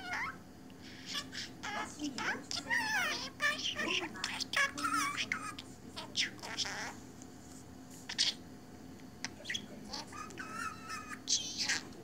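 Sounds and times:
budgerigar chirping and warbling: 0:00.0 - 0:00.4, 0:01.0 - 0:07.0, 0:08.1 - 0:08.4, 0:09.3 - 0:12.0.

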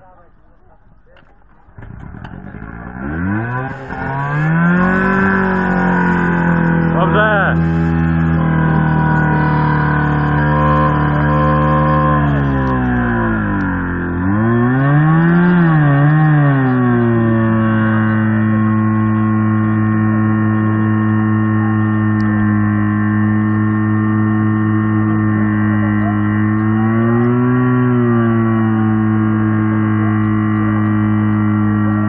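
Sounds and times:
pump engine running hard: 0:00.0 - 0:32.0.

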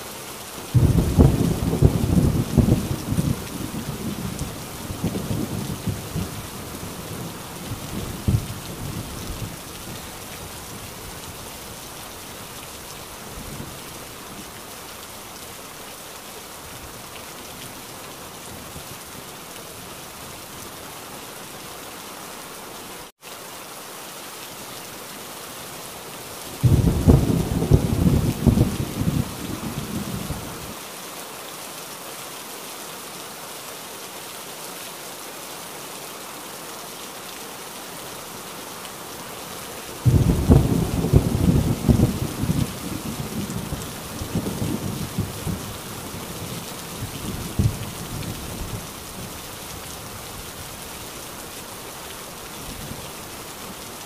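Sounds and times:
heavy rain: 0:00.0 - 0:54.0
thunder rolling: 0:40.0 - 0:43.8.

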